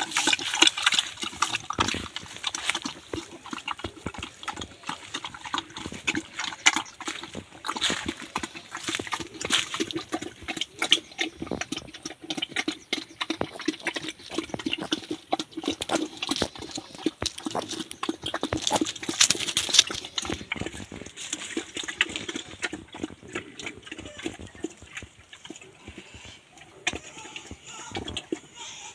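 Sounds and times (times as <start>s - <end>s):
dry leaves crackling: 0.0s - 10.5s, 15.9s - 22.8s
piglets grunting: 0.0s - 28.9s.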